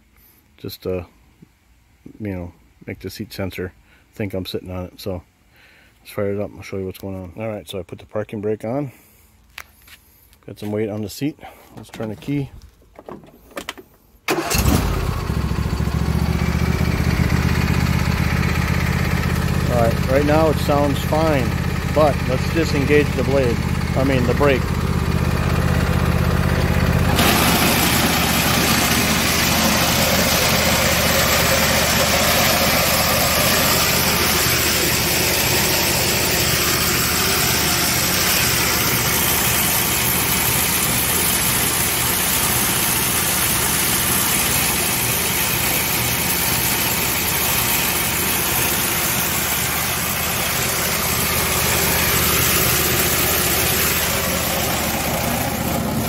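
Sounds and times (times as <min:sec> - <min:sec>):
lawn tractor engine running: 0:14.3 - 0:56.0.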